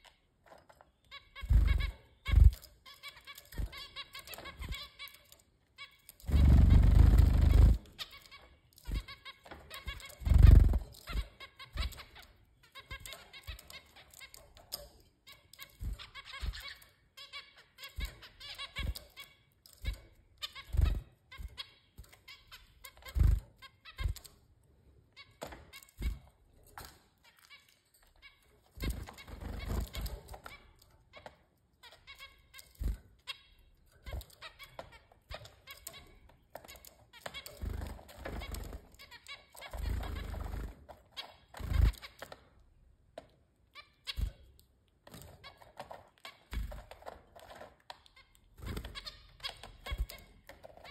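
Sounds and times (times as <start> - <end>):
wing flutters: 6.2 - 8.0, 10.0 - 11.2
finches calling with nasal beeps: 9.8 - 10.8.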